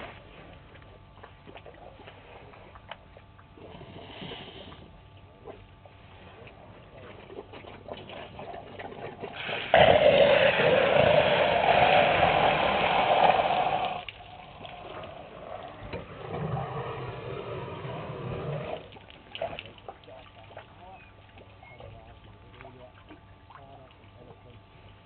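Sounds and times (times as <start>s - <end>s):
elephant squirting water: 6.4s - 21.8s.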